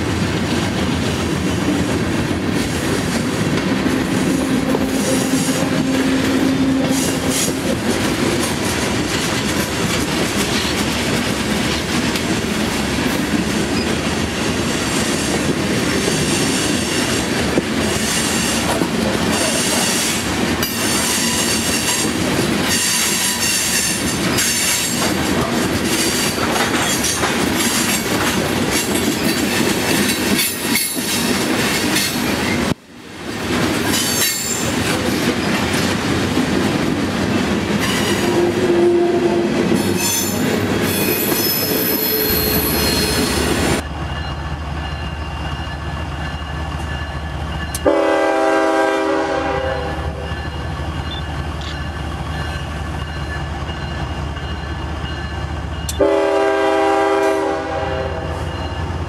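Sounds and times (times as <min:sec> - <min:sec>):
train wheels clacking over rails: 0:00.0 - 0:38.6
high-pitched wheel squeal: 0:40.0 - 0:43.6.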